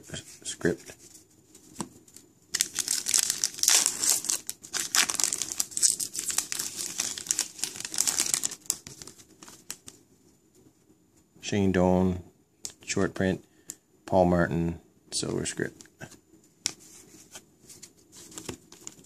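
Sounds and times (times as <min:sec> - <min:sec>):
foil wrapper tearing and crinkling: 0:02.6 - 0:09.9
cards rustling and clicking: 0:02.6 - 0:10.0, 0:16.6 - 0:19.0.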